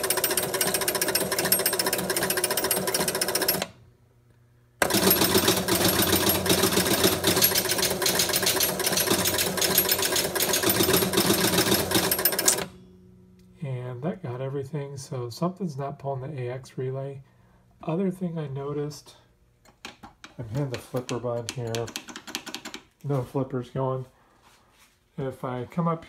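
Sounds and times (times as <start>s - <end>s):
pinball motor and relays clattering: 0.0s - 3.8s, 4.8s - 12.9s.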